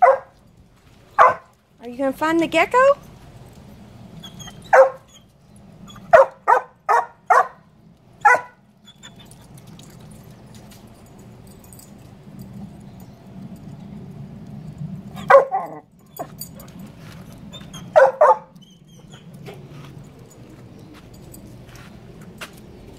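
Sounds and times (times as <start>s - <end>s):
dog barking: 0.0s - 0.4s, 1.2s - 1.5s, 4.7s - 5.1s, 6.1s - 7.6s, 8.2s - 8.6s, 15.2s - 15.8s, 17.9s - 18.5s.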